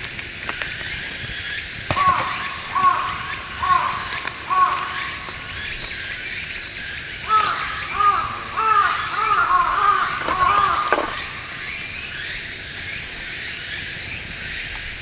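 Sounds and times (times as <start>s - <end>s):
crow cawing: 1.9s - 12.4s.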